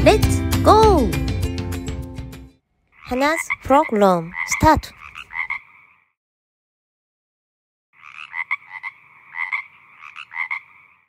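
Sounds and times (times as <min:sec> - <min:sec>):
frog croaking: 0:02.8 - 0:06.2, 0:08.0 - 0:11.0.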